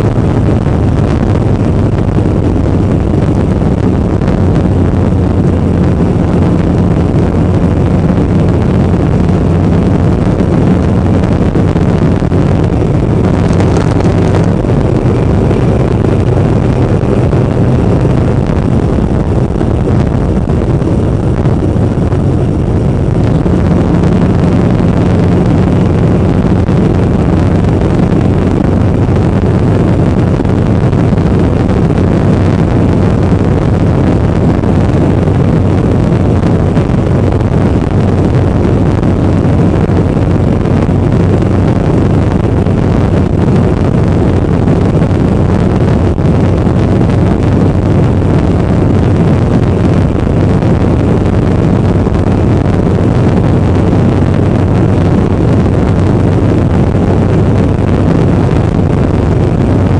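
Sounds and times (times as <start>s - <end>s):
motorcycle engine running: 0.0s - 59.9s
wind rush on microphone: 0.0s - 59.9s.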